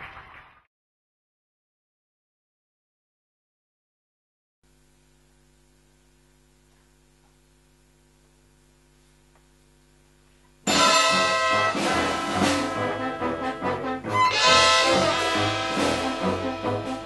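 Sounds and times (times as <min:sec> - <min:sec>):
faint steady hum: 0:04.6 - 0:17.0
pit orchestra playing: 0:10.7 - 0:17.0.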